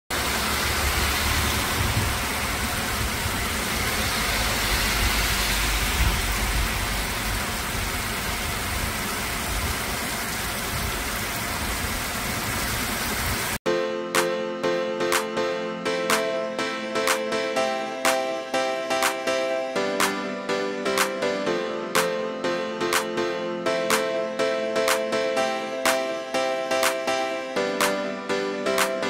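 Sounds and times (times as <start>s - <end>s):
heavy rain pouring: 0.1s - 13.6s
low rumble: 0.5s - 8.8s.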